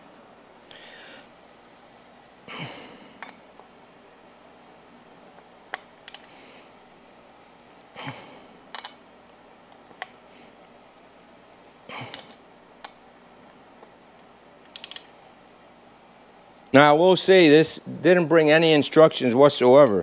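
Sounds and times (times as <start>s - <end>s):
heavy breaths of effort: 0.7s - 1.3s.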